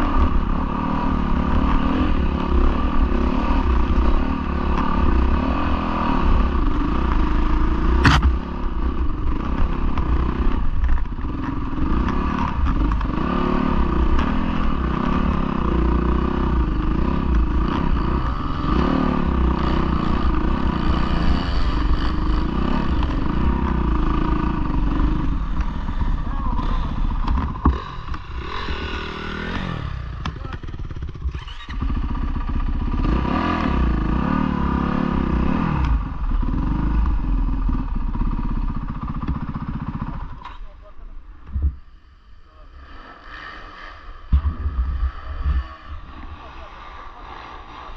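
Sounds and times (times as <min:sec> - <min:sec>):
dirt bike engine revving: 0:00.0 - 0:47.9
wind rumble on microphone: 0:44.3 - 0:46.4.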